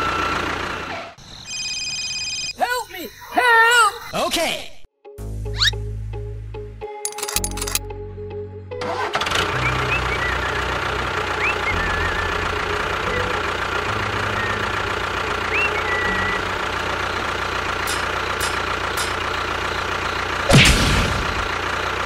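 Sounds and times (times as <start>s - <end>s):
tractor engine idling: 0.0s - 1.0s, 8.8s - 22.0s
sharp clicks: 7.1s - 7.8s
bird chirping: 15.4s - 17.2s.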